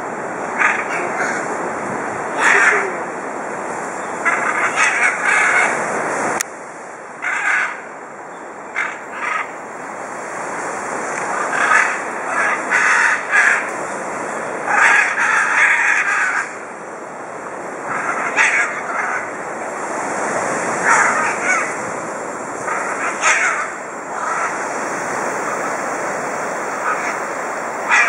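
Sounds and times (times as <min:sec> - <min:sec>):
rushing background noise: 0:00.0 - 0:28.0
macaws squawking: 0:00.6 - 0:01.6, 0:02.3 - 0:03.1, 0:04.2 - 0:05.8, 0:07.2 - 0:07.8, 0:08.8 - 0:09.5, 0:11.3 - 0:13.8, 0:14.6 - 0:16.6, 0:17.8 - 0:19.4, 0:20.8 - 0:21.8, 0:22.6 - 0:24.6, 0:26.7 - 0:27.3.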